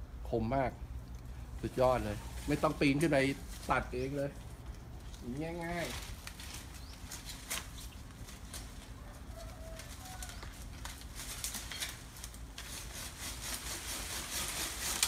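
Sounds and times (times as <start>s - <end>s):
pruning saw rasping on branch: 10.4s - 15.0s.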